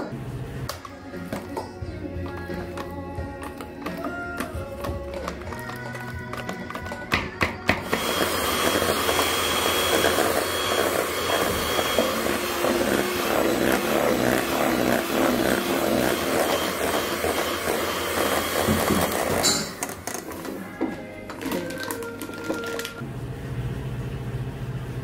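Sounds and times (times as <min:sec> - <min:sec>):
motor-driven machine running: 0:07.9 - 0:19.4.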